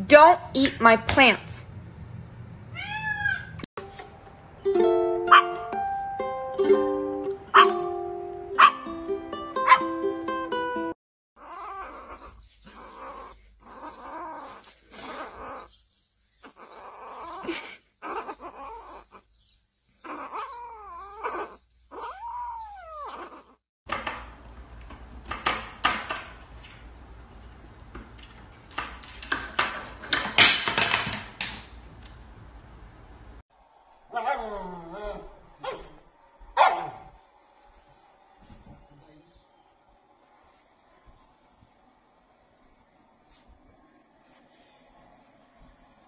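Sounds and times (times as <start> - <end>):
kitten meowing: 2.7 - 3.6.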